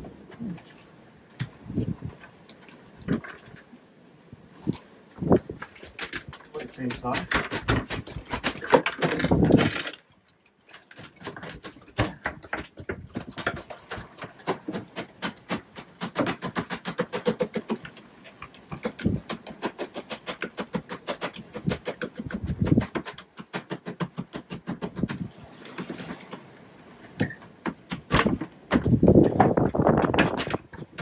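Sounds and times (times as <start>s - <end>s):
fish tail drumming on wooden slats: 5.2s - 10.0s, 10.7s - 26.5s, 27.1s - 31.0s.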